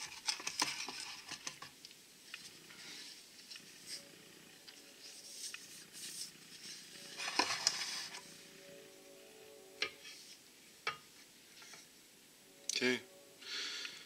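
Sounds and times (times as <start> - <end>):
rubbing and scraping: 0.0 - 1.8, 4.7 - 8.4.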